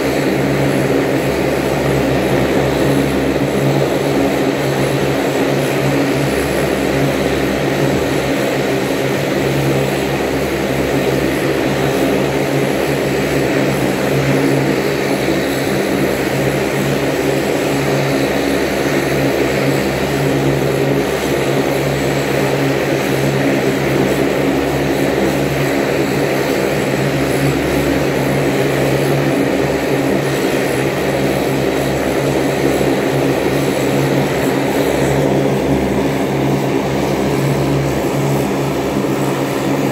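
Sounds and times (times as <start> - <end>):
high turbine whine: 0.0 - 39.9
turboprop propeller drone: 0.0 - 39.9.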